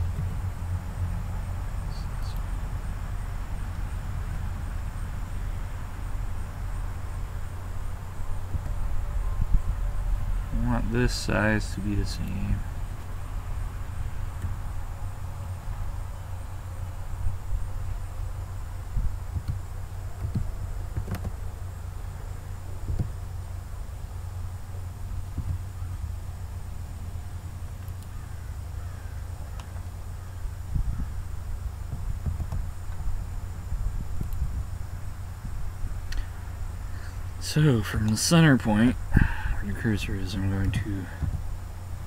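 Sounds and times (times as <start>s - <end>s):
background hiss: 0.0s - 42.0s
low hum: 0.0s - 42.0s
faint short ticks: 36.1s - 36.3s.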